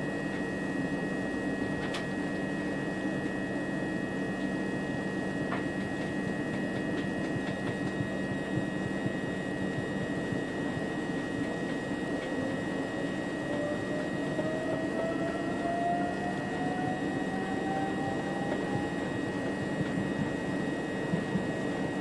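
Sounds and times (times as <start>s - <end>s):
constant high whine: 0.0s - 22.0s
train running rumble: 4.4s - 22.0s
thin tone rising in pitch: 12.3s - 20.3s.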